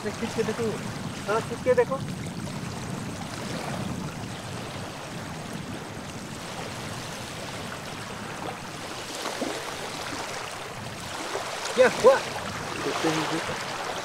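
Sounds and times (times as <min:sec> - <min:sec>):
river water flowing: 0:00.0 - 0:14.0.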